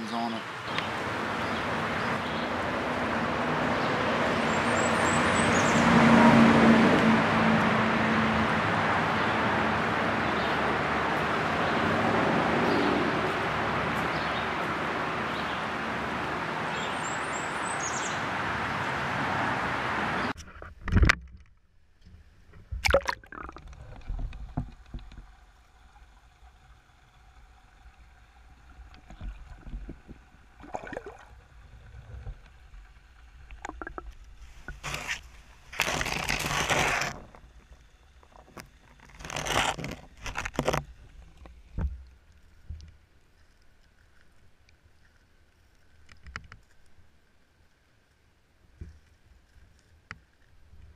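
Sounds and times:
underwater sloshes and gurgles: 20.4s - 50.9s.

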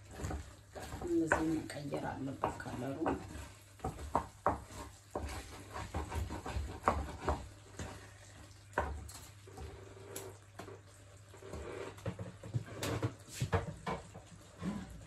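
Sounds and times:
wooden spoon scraping a pan: 0.0s - 15.0s.

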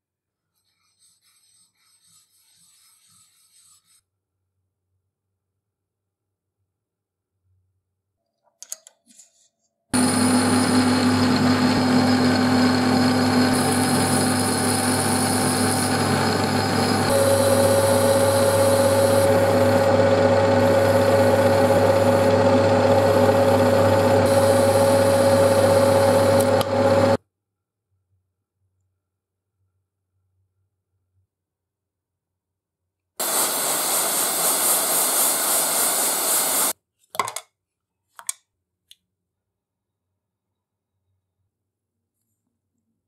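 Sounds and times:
metal lathe machining metal: 10.0s - 27.2s.

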